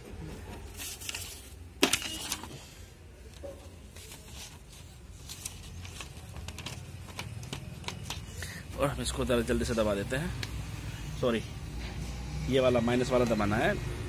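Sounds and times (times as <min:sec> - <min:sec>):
paper rustling and clicking: 0:00.3 - 0:08.5.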